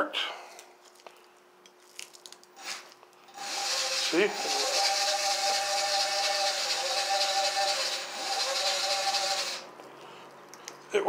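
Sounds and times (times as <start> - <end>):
hub motor whining: 2.6 - 9.7.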